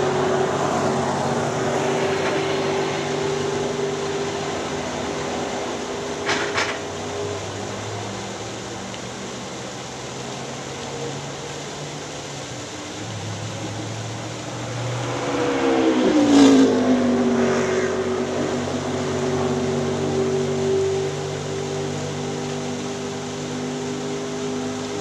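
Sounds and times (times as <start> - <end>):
race car passing by: 0.0 - 7.4, 13.1 - 25.0
distant race car engines: 0.0 - 25.0
waterfall splashing: 0.0 - 25.0.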